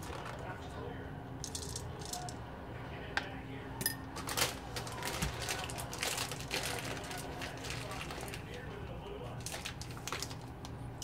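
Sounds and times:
snack bag rustling: 4.2s - 10.8s.

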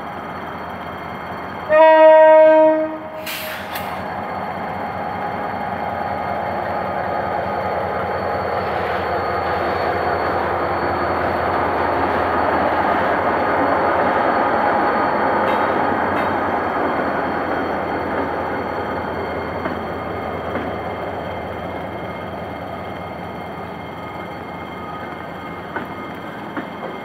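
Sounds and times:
diesel locomotive engine: 0.0s - 27.0s
locomotive horn blast: 1.7s - 3.4s
brief hiss: 3.2s - 4.1s.

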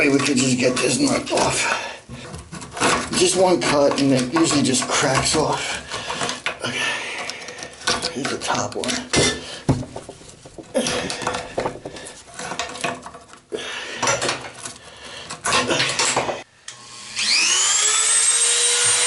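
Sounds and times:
screwdriver clicking and scraping metal: 2.2s - 9.2s, 11.0s - 13.4s
rotary tool whining: 16.7s - 19.0s.

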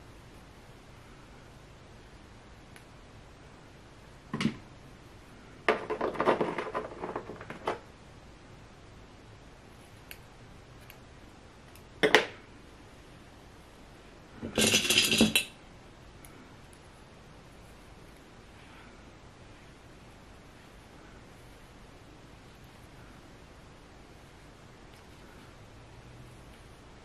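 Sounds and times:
handling clatter and rustling: 14.4s - 15.5s.

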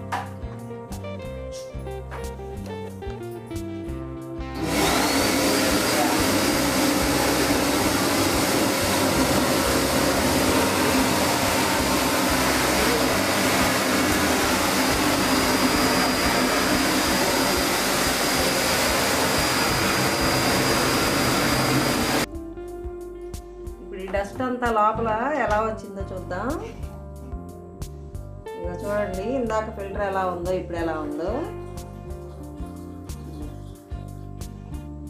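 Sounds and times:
vacuum cleaner running: 4.5s - 22.3s.

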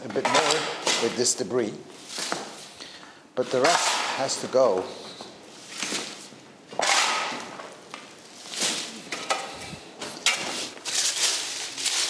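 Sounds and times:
debris scraped across tile floor: 9.6s - 12.0s.

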